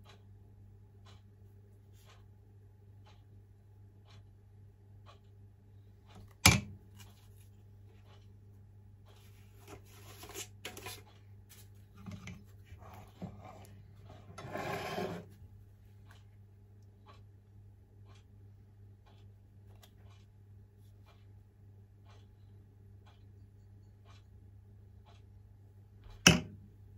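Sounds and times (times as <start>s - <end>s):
ladle scraping in metal bowl: 12.1s - 15.3s.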